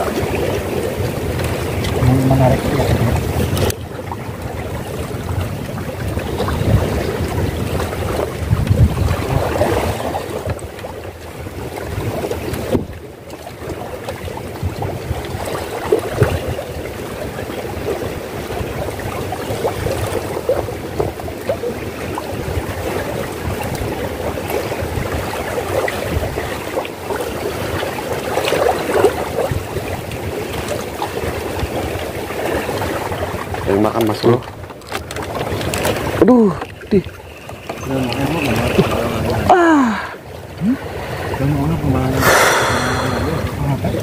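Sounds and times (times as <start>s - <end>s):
wind buffeting microphone: 0.0s - 33.7s
water lapping against platform: 0.0s - 44.0s.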